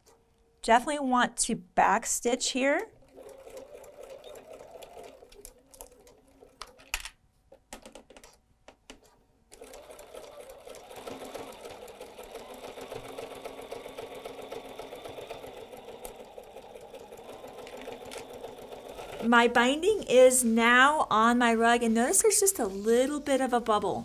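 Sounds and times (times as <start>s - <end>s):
sewing machine stitching: 2.6s - 7.0s, 9.5s - 24.0s
sewing machine clicks: 2.8s - 7.1s, 8.9s - 19.6s.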